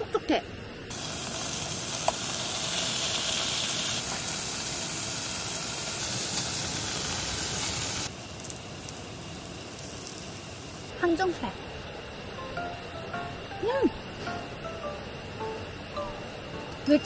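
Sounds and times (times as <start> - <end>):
meat sizzling in a pan: 0.9 - 10.9
faint crackles: 5.5 - 10.9.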